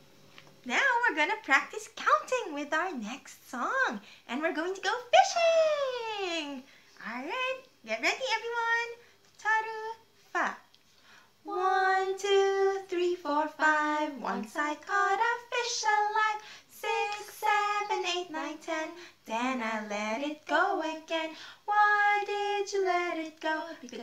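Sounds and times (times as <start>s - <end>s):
women singing together: 11.4s - 24.0s.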